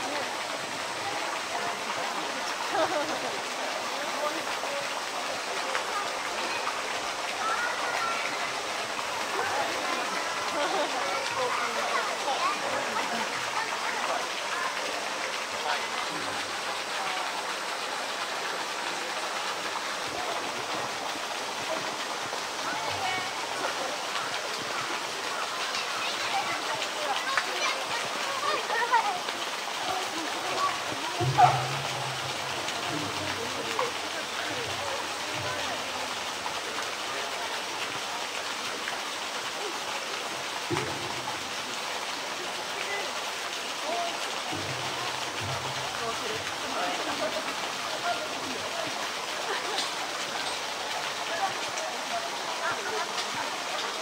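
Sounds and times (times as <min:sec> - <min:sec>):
water gushing into pool: 0:00.0 - 0:54.0.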